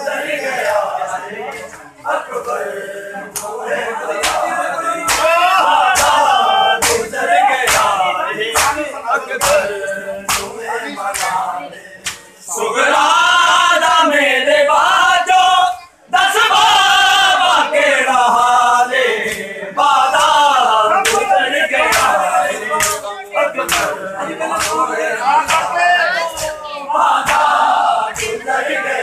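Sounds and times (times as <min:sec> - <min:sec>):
men chanting in unison: 0:00.0 - 0:29.0
hands slapping chests: 0:03.3 - 0:03.6, 0:04.2 - 0:11.4, 0:12.0 - 0:12.3, 0:22.8 - 0:25.7, 0:27.2 - 0:28.4.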